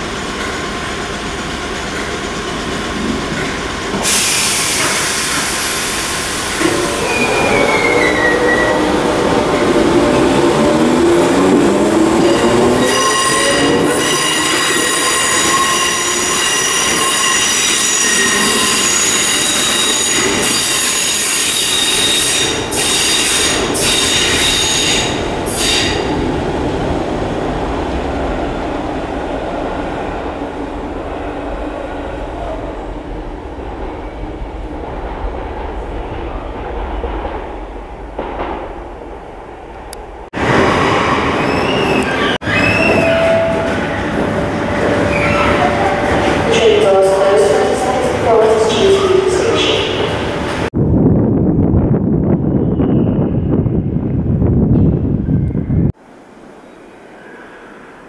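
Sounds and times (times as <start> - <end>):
train wheels squealing: 7.0 - 8.9, 12.2 - 26.0, 40.8 - 44.0, 45.1 - 45.9, 52.6 - 53.5.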